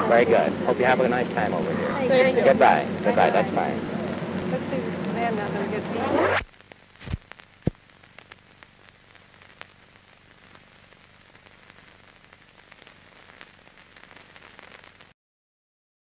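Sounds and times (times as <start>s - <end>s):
film soundtrack hiss: 0.0s - 15.2s
crackles and clicks: 0.4s - 15.2s.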